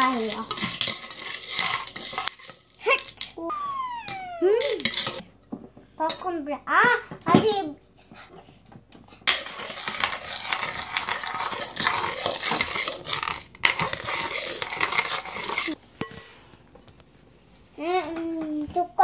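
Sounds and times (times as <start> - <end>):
spoon stirring kernels in metal pot: 0.0 - 3.4, 4.1 - 5.3, 9.2 - 16.2.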